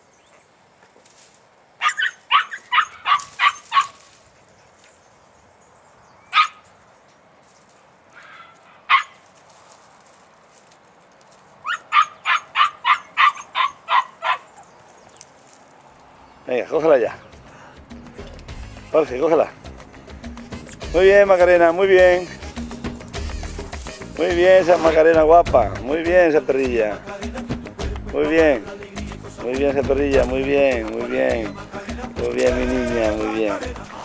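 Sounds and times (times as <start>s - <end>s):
puppy barking in high yaps: 1.8s - 4.0s, 6.3s - 6.6s, 8.2s - 9.2s, 11.6s - 14.6s.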